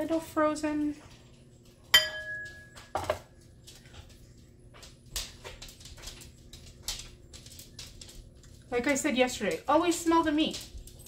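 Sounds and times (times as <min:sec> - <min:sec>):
glass bowl clinking on counter: 0:02.0 - 0:03.2.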